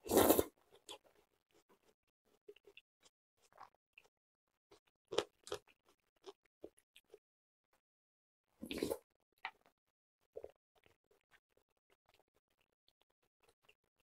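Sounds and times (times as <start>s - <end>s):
slurping soup from a spoon: 0.0s - 1.1s, 8.6s - 9.0s
wet chewing clicks: 4.7s - 7.2s.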